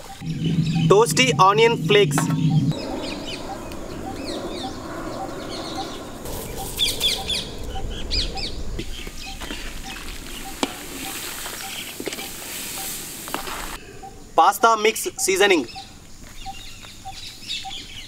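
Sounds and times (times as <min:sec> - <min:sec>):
steady low hiss: 0:00.0 - 0:17.5
birds chirping: 0:00.0 - 0:18.0.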